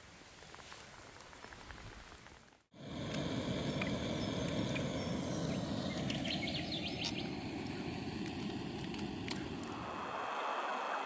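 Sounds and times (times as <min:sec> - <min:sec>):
gas stove burning: 0:02.7 - 0:10.2.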